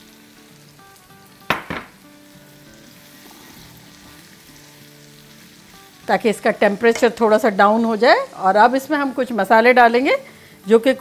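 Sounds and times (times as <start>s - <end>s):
vegetables sizzling in oil: 0.0s - 11.0s
sharp knock: 1.5s - 2.0s.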